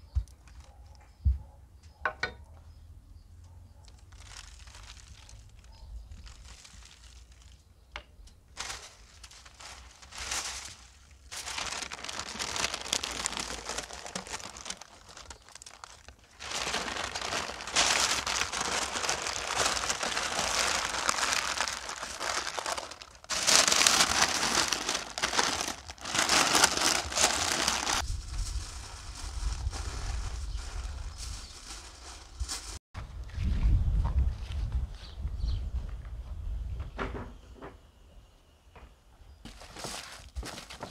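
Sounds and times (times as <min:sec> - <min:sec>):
baking parchment crinkling: 0:03.9 - 0:07.7, 0:08.5 - 0:32.8, 0:39.5 - 0:40.9.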